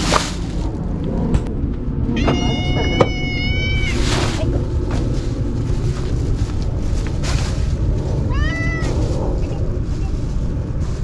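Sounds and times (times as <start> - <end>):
wind rumble on microphone: 0.0 - 11.0
cat meowing: 2.1 - 4.2, 8.3 - 9.0.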